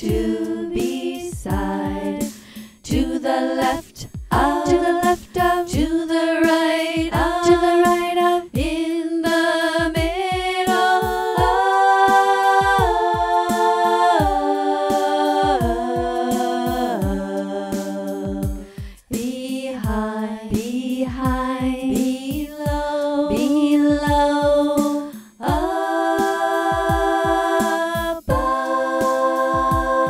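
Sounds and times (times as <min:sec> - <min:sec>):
chords over steady beat: 0:00.0 - 0:02.3, 0:09.8 - 0:19.0, 0:25.4 - 0:30.0.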